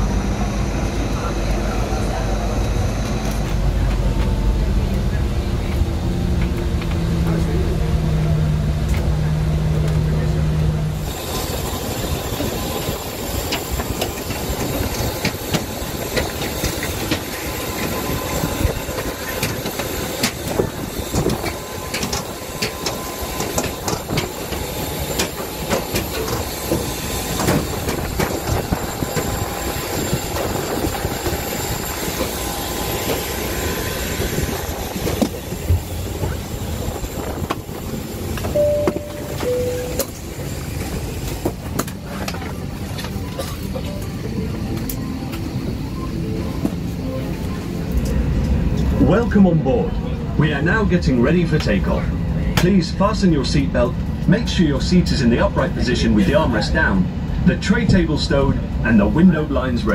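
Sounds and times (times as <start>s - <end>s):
bus engine humming: 0.0s - 59.9s
thin high whine: 36.9s - 41.1s.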